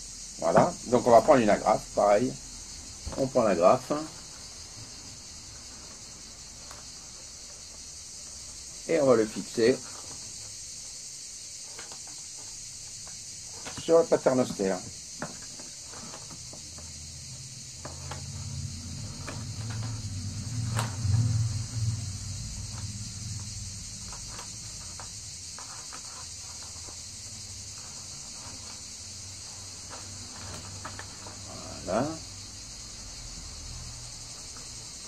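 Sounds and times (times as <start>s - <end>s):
insect buzzing: 0.0s - 35.0s
low rumble: 18.3s - 24.6s.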